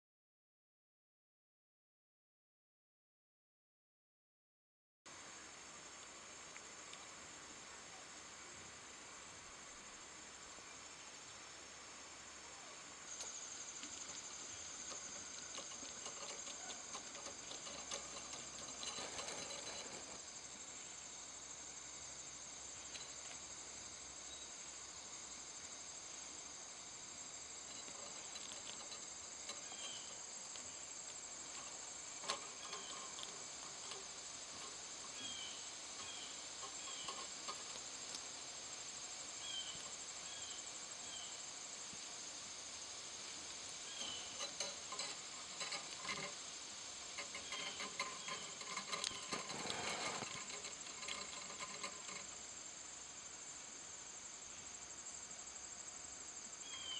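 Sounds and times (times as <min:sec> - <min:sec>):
insects trilling: 0:05.2 - 0:56.9
light clicks and rustling: 0:13.1 - 0:20.3, 0:27.6 - 0:38.3, 0:44.0 - 0:52.5.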